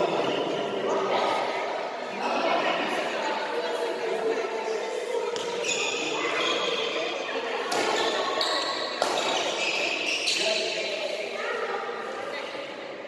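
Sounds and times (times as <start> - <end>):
shoes squeaking on court floor: 5.2 - 7.0, 7.6 - 11.0
racket hitting shuttlecock: 7.6 - 8.2, 8.9 - 9.8.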